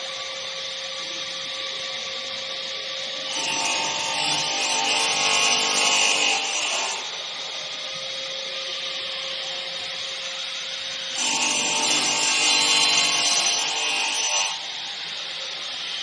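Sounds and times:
router motor humming: 3.0s - 16.0s
saw blade cutting wood: 3.2s - 7.2s, 11.0s - 16.0s.

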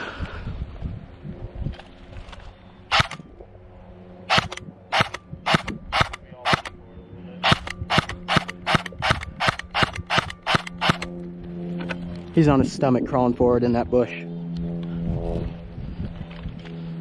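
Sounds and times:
airsoft gun shots: 2.9s - 3.2s, 4.3s - 6.7s, 7.4s - 11.1s.

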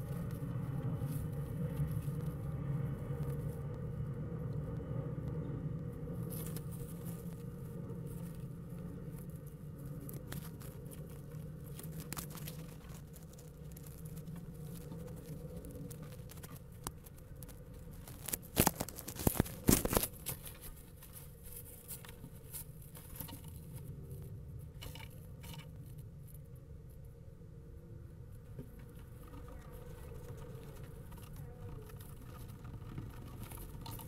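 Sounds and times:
steady low hum: 0.0s - 34.0s
loud scrapes and clicks: 9.8s - 22.2s.

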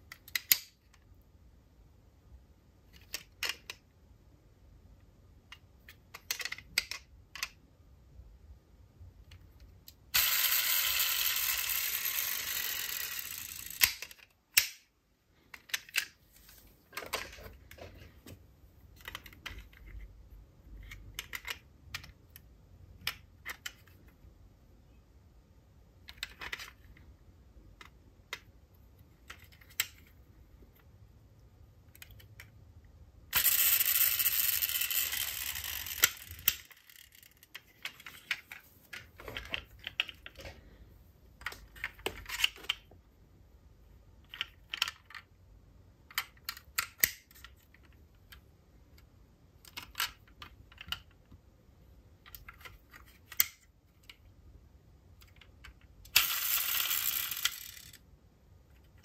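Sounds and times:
toy cars clicking and tapping: 0.1s - 0.8s, 5.5s - 7.6s, 10.2s - 14.8s, 33.3s - 38.5s, 55.2s - 58.0s.

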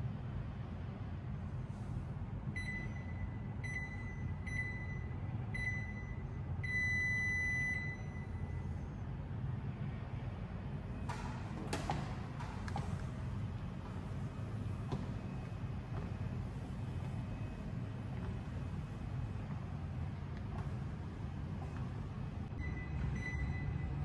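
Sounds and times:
steady low hum: 0.0s - 24.0s
treadmill console beeps: 2.5s - 8.8s, 14.0s - 19.2s, 22.5s - 24.0s.

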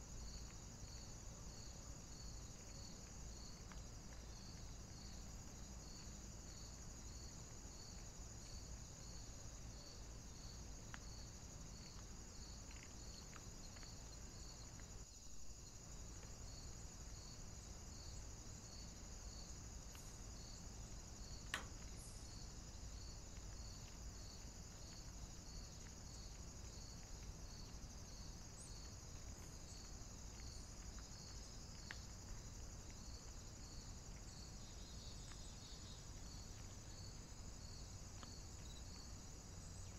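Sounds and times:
crickets chirring: 0.0s - 39.9s
faint ticks: 0.0s - 39.9s
low hiss: 0.0s - 39.9s
sharp click: 21.4s - 21.9s.

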